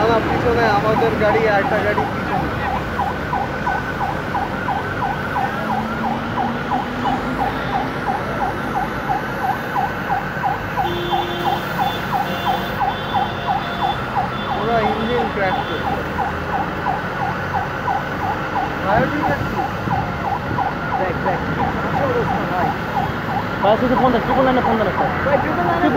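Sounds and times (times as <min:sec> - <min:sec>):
crowd noise: 0:00.0 - 0:09.9
traffic: 0:00.0 - 0:25.9
electronic siren sweeping: 0:00.8 - 0:25.9.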